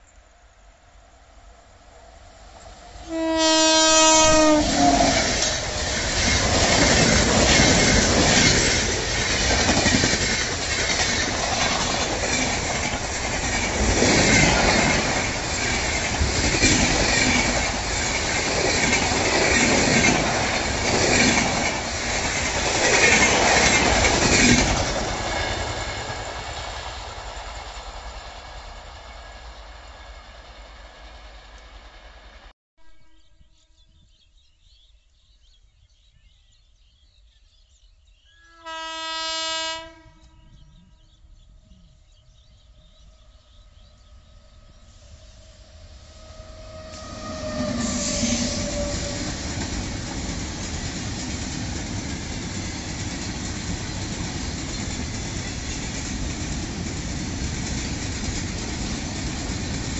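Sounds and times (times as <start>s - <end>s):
locomotive air horn: 3.0s - 5.4s, 38.5s - 40.6s, 46.2s - 49.3s
train wheels clattering over rails: 4.9s - 31.4s, 45.8s - 59.9s.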